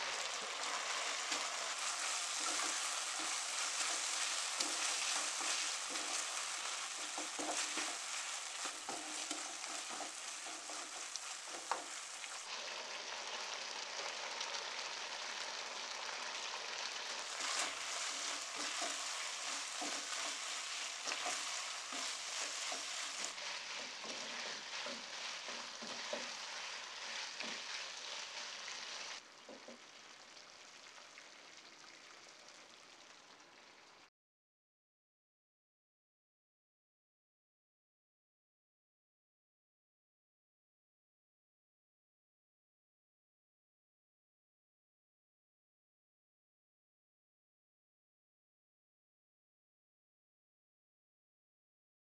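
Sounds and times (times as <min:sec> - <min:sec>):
wooden spatula scraping: 0:00.0 - 0:12.5, 0:17.0 - 0:29.8
food sizzling in a wok: 0:00.0 - 0:34.1.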